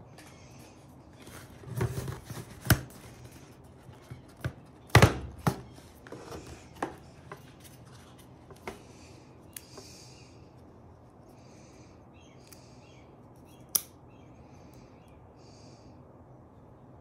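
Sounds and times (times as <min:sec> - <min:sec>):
cardboard box sliding and rustling: 0:01.2 - 0:03.6.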